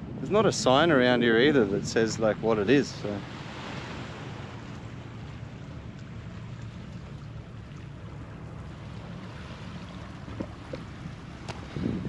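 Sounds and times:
water washing at shoreline: 0:00.0 - 0:12.0
wind buffeting microphone: 0:00.0 - 0:12.0.

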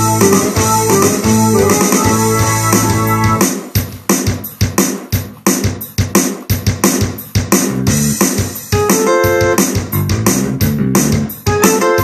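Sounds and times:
synthesizer chords and staccato hits: 0:00.0 - 0:03.5.

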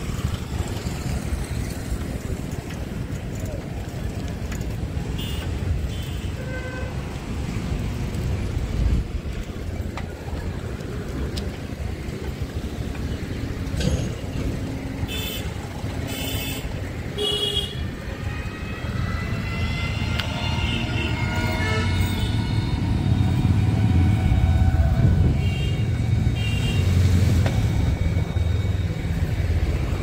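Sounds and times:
traffic and road noise rumble: 0:00.0 - 0:30.0
vehicle horn toots: 0:20.0 - 0:23.2, 0:24.2 - 0:26.9.

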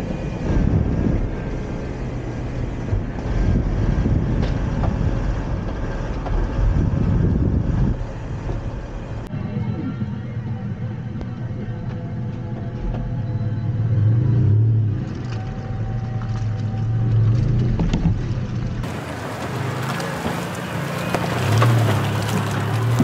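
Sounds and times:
pickup truck engine running: 0:00.0 - 0:23.0
tyres crunching over rocks: 0:15.1 - 0:23.0.

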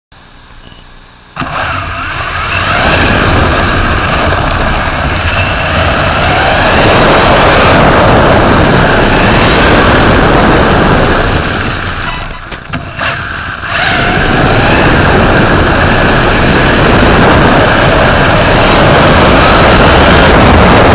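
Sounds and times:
low chassis rumble: 0:00.2 - 0:20.9
rc car motor accelerating: 0:01.4 - 0:20.9.

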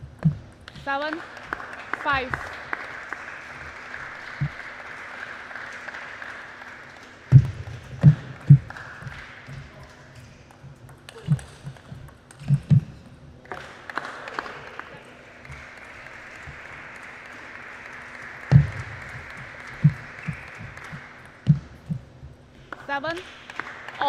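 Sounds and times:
scattered applause: 0:00.7 - 0:12.0, 0:13.4 - 0:22.0, 0:22.6 - 0:24.0
table tennis ball knocking: 0:10.5 - 0:13.2.

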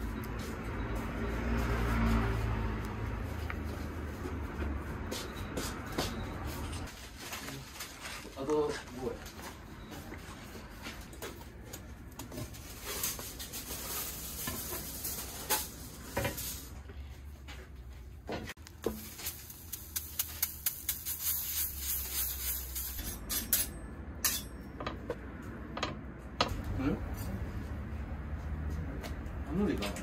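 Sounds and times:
batter sizzling on griddle: 0:18.8 - 0:23.1.

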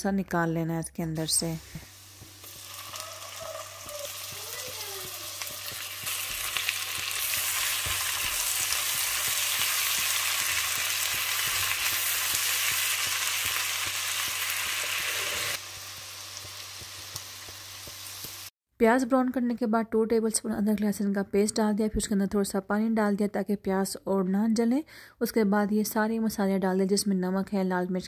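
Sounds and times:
onions sizzling in oil: 0:01.3 - 0:18.5.

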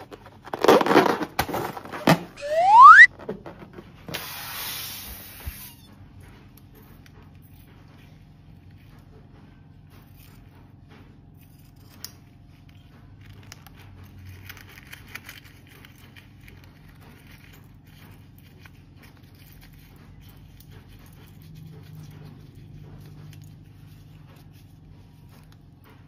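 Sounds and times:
balloon rubbing and rustling: 0:00.0 - 0:03.1.

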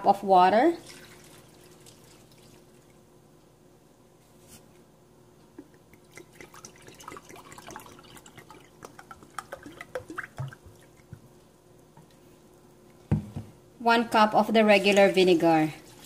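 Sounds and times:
water splashing and dripping into pot: 0:00.8 - 0:03.0, 0:05.6 - 0:11.3.

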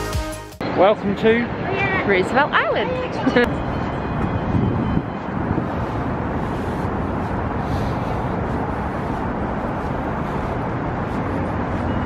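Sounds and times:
road traffic rumble: 0:00.6 - 0:12.0.

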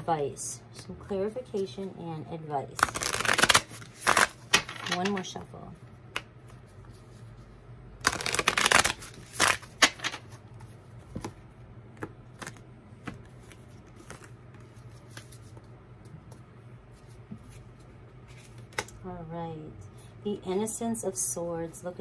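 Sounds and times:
cards shuffling: 0:02.8 - 0:05.4, 0:08.0 - 0:11.4, 0:12.0 - 0:16.4.

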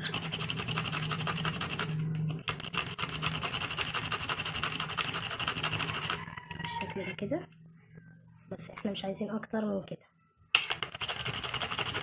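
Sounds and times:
cucumber grated on metal grater: 0:00.0 - 0:06.2, 0:10.9 - 0:12.0.

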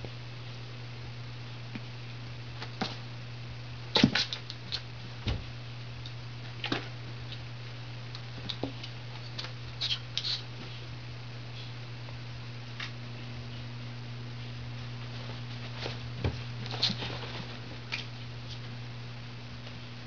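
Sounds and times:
steady low hum: 0:00.0 - 0:20.0
dull thump: 0:05.2 - 0:05.5.

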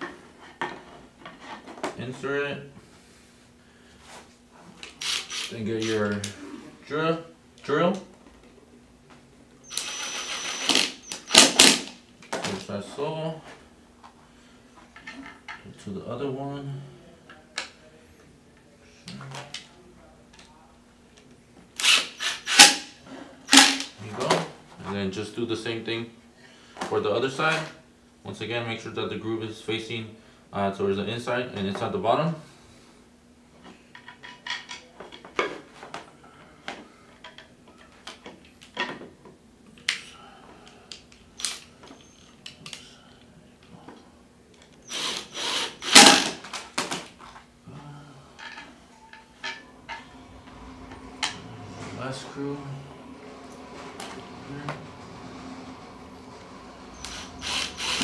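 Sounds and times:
impact driver driving screw: 0:04.9 - 0:06.1, 0:09.7 - 0:11.9, 0:21.8 - 0:22.9, 0:44.9 - 0:46.4, 0:57.0 - 0:58.0.

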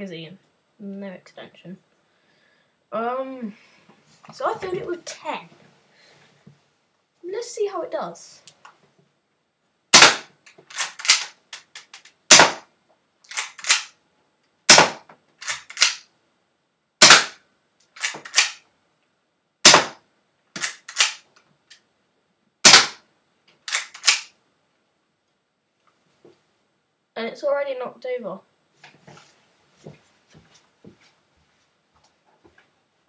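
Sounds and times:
bb gun shots cracking: 0:10.0 - 0:11.4, 0:12.3 - 0:12.7, 0:13.3 - 0:13.9, 0:14.7 - 0:16.0, 0:17.0 - 0:17.4, 0:18.0 - 0:18.6, 0:19.6 - 0:20.0, 0:20.6 - 0:21.2, 0:22.6 - 0:23.0, 0:23.7 - 0:24.3.

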